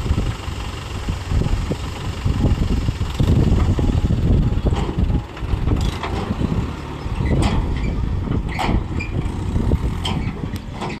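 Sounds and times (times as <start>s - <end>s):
diesel tractor engine running: 0.0s - 11.0s
trolley clanking and rattling: 0.0s - 11.0s.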